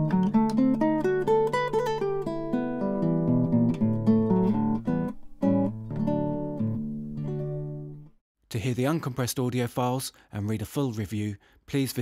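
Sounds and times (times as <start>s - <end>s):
classical guitar fingerstyle: 0.0s - 8.1s.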